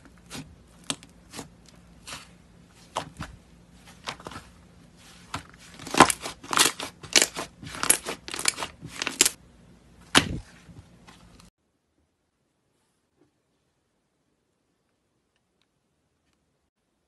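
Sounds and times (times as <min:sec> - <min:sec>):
slime crackling and squishing: 0:03.8 - 0:09.4.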